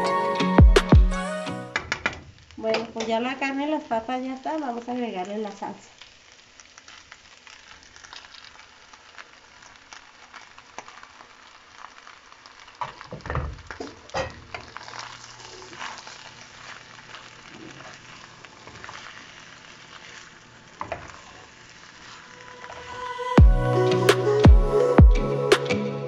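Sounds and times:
food sizzling in a pan: 1.8 - 25.8
wooden spoon scraping a pan: 13.8 - 22.9.

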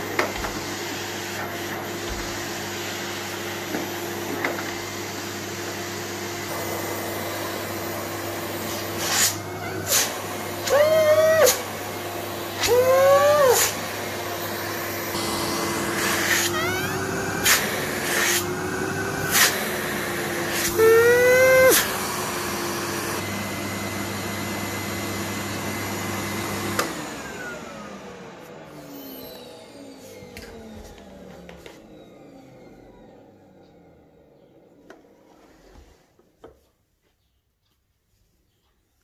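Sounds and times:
vacuum cleaner motor hum: 0.0 - 36.4
motor winding down whine: 15.2 - 17.6, 20.6 - 22.0.

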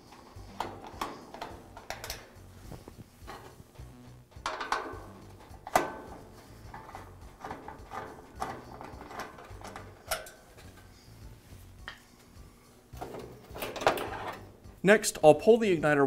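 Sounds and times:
screwdriver clicking and scraping metal: 0.0 - 2.5, 4.3 - 11.0.

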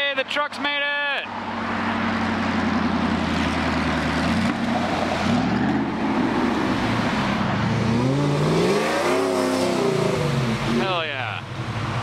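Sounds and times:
truck engines humming: 0.0 - 12.0
engine revving: 2.1 - 11.1.

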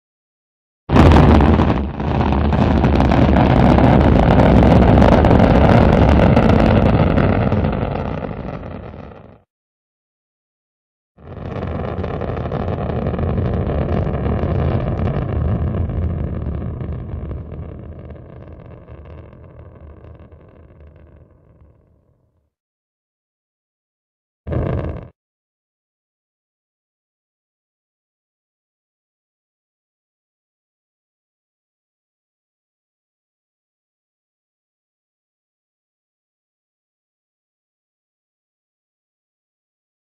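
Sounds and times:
rocket engine rumbling: 0.9 - 9.4, 11.2 - 21.9, 24.5 - 25.1.

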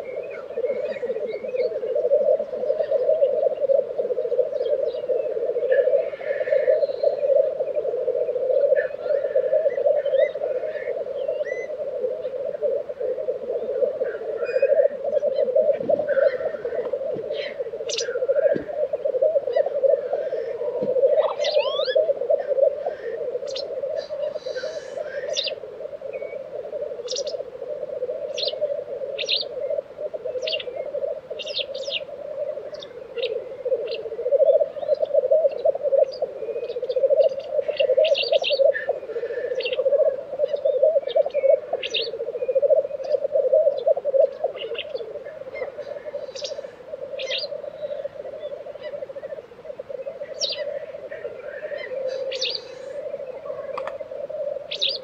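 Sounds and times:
grouse bubbling coos: 0.0 - 55.0
grouse hissing: 0.0 - 55.0
short high bird calls: 21.2 - 22.0, 50.2 - 54.1.

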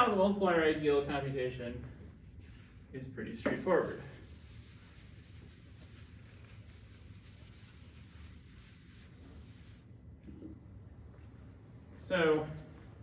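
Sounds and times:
eraser rubbing on blackboard: 2.2 - 2.9, 3.5 - 9.9.

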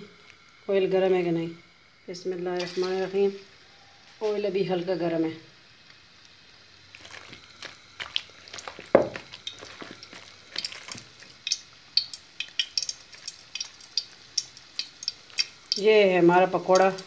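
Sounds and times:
batter crackling in hot oil: 2.5 - 17.0
batter mixed by hand: 6.9 - 17.0.

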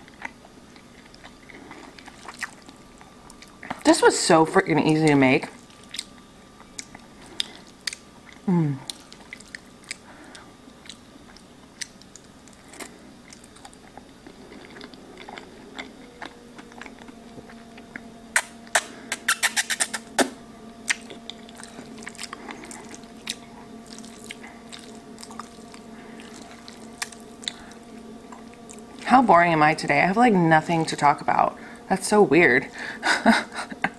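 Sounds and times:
faint steady hum: 0.0 - 33.9
wet chewing and lip smacks: 5.0 - 29.1
noodle slurping clicks: 18.4 - 21.1.

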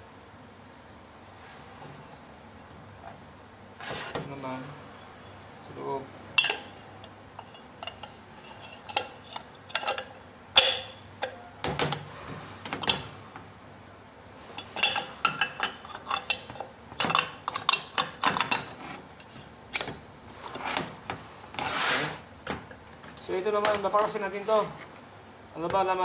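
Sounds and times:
metal parts clinking and knocking: 6.4 - 12.1, 14.5 - 20.0.

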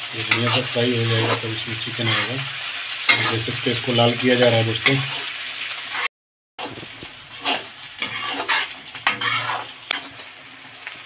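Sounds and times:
onions sizzling in hot oil: 0.0 - 11.0
metal spatula scraping pan: 0.2 - 2.4, 3.0 - 3.5, 4.5 - 10.4.

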